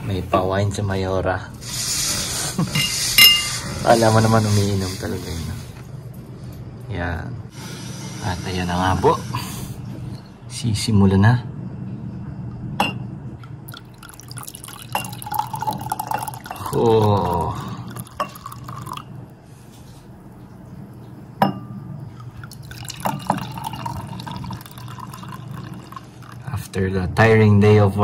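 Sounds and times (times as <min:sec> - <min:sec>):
glass clinking: 0:02.7 - 0:03.6, 0:12.8 - 0:13.1, 0:13.7 - 0:19.1, 0:21.4 - 0:26.5
wine pouring into glass: 0:13.7 - 0:19.2, 0:22.0 - 0:26.8.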